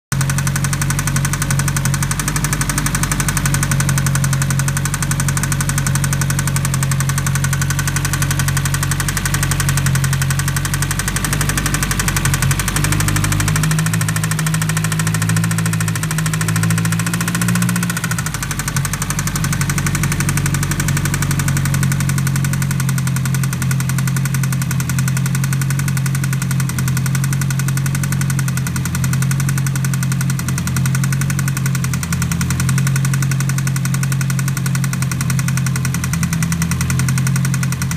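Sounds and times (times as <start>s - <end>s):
car engine idling: 0.1s - 37.9s
loud ticking from cylinder head: 0.1s - 37.9s.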